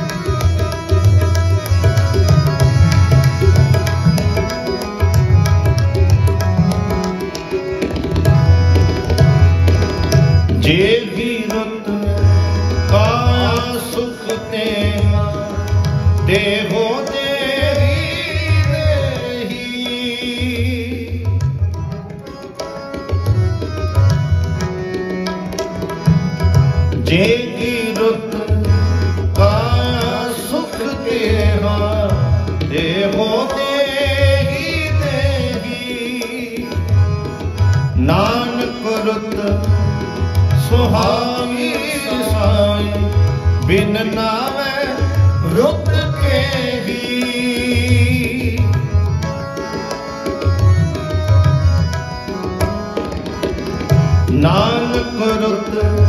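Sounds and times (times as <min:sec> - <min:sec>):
harmoniums playing: 0:00.0 - 0:56.0
man singing: 0:10.5 - 0:21.4, 0:27.0 - 0:37.0, 0:38.0 - 0:49.1, 0:54.3 - 0:56.0.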